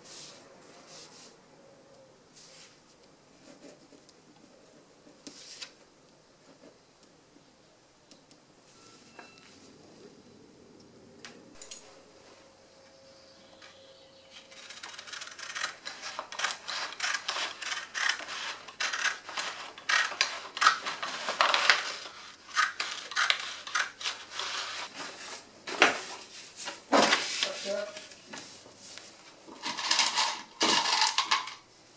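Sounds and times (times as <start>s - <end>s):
shears snipping paper: 14.4s - 24.9s.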